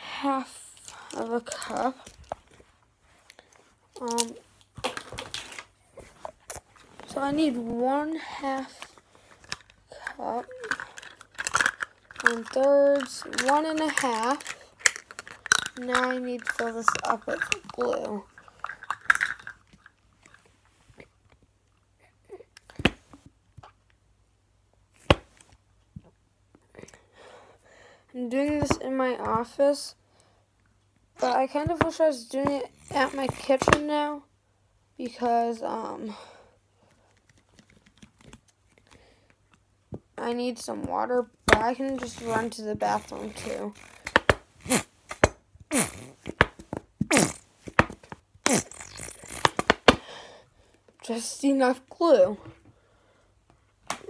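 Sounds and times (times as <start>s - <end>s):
glue bottle spluttering and squelching: 47.0s - 50.0s.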